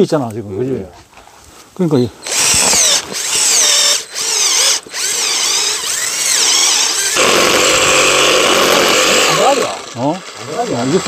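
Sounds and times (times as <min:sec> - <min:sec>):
cordless drill boring into wood: 0:02.2 - 0:11.0
reciprocating saw cutting wood: 0:02.2 - 0:11.0.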